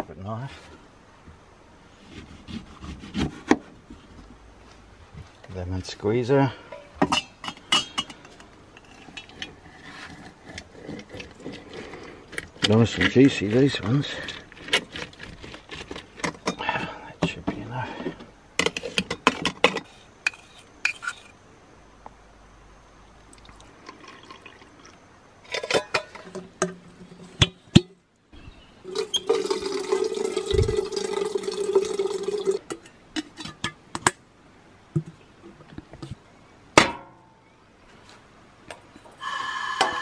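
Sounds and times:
water running into metal kettle: 28.9 - 32.7.

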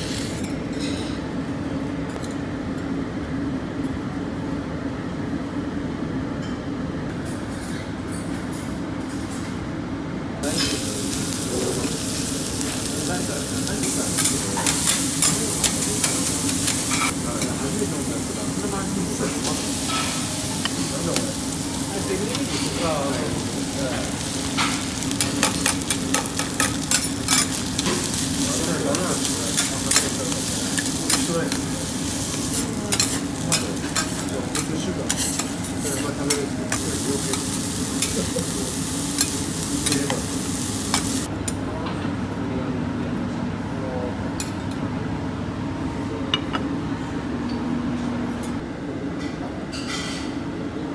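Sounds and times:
fried rice sizzling on griddle: 10.4 - 41.3.

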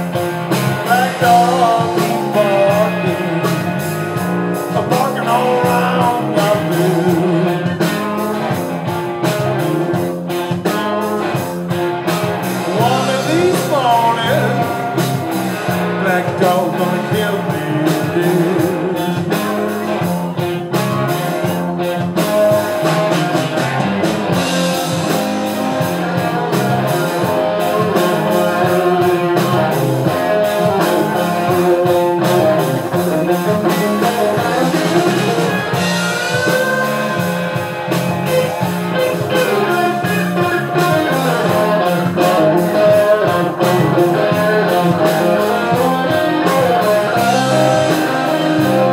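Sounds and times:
drum kit: 0.0 - 48.9
electric guitars: 0.0 - 48.9
lead guitar bending notes: 0.0 - 48.9.

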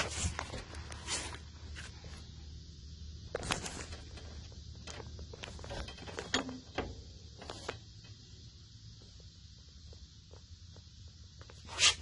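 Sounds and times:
low steady hum: 0.0 - 12.0
light handling clicks and rustles: 3.3 - 8.2.

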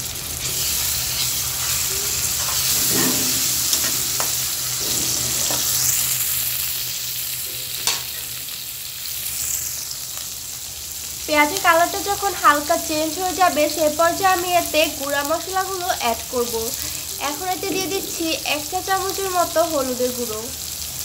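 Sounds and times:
onions sizzling in hot oil: 0.0 - 21.0
spatula scraping and tapping pan: 1.2 - 5.8.

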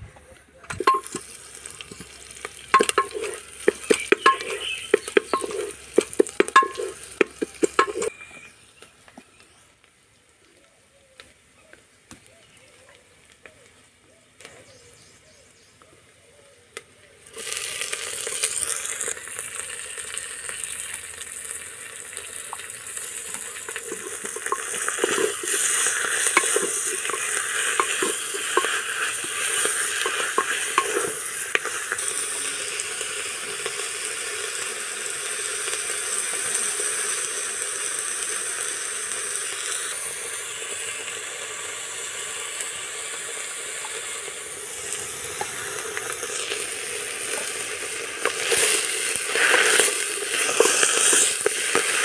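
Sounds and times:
ladle clicking against pot: 0.7 - 1.2, 2.7 - 8.1, 23.8 - 31.7
food sizzling in a pot: 0.7 - 8.6, 17.2 - 52.0.

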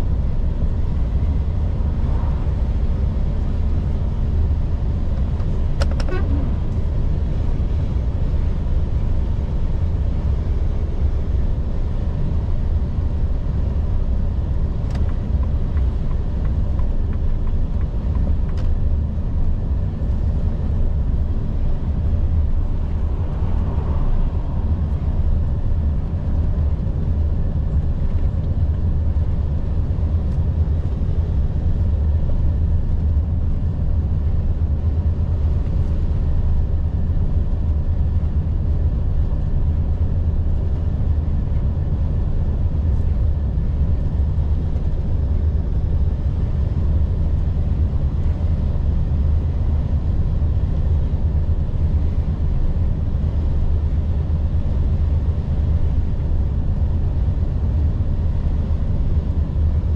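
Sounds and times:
truck diesel engine droning: 0.0 - 52.6.

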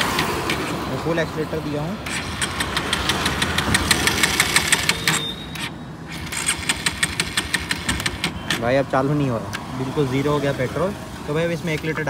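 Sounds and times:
electric starter cranking engine: 0.0 - 8.9.

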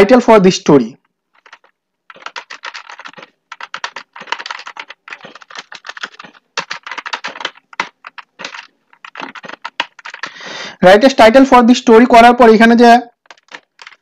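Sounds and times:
typing on a computer keyboard: 1.3 - 10.5, 13.1 - 14.0.

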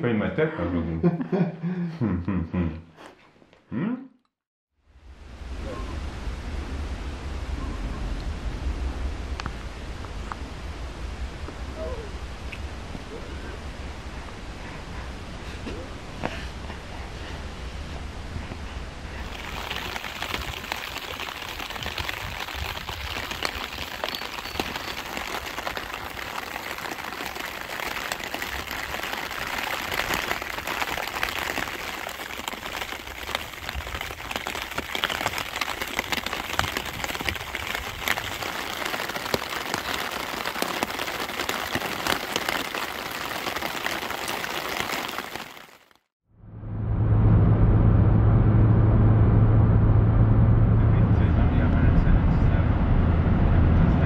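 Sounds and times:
rain hissing: 4.9 - 46.1
raindrops ticking on glass: 19.3 - 45.9.

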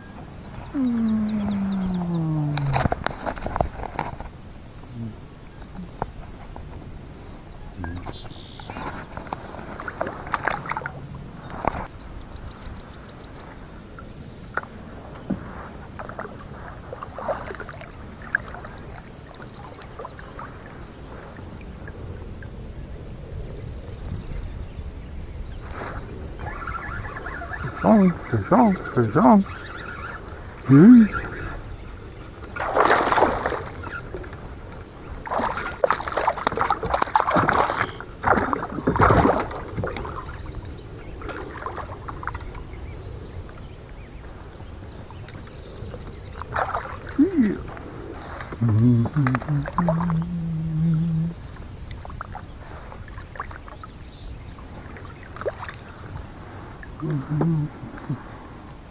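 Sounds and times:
knocks and clicks of kayak gear: 2.6 - 4.4
fish splashing in water: 32.5 - 34.5, 35.2 - 40.4, 46.3 - 50.4.

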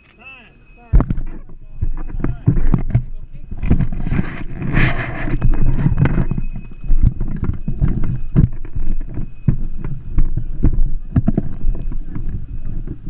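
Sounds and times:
faint thin high tones: 0.0 - 13.0
wind buffeting microphone: 0.9 - 13.0.

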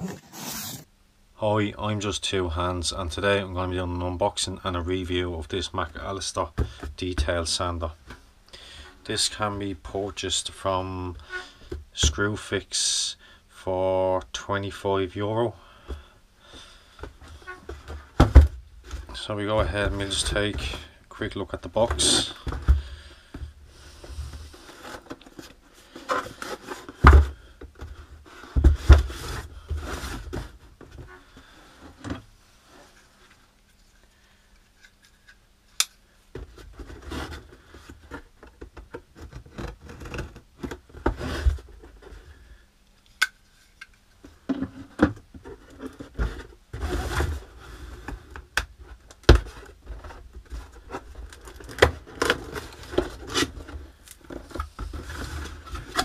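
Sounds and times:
cardboard rubbing and scraping: 0.0 - 0.9, 28.2 - 30.6, 45.5 - 48.1.

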